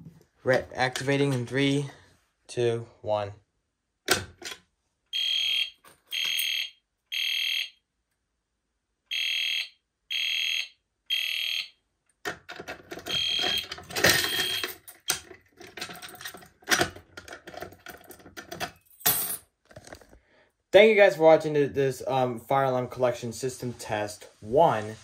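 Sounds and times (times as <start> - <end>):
fire alarm horn beeping: 5.1 - 7.8, 9.1 - 11.8, 13.1 - 14.7
clicks and clatter of pull station: 12.2 - 18.8.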